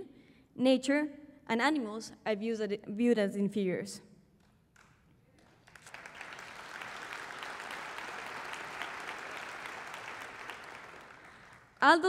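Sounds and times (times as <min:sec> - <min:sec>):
audience applauding: 0:04.8 - 0:11.8.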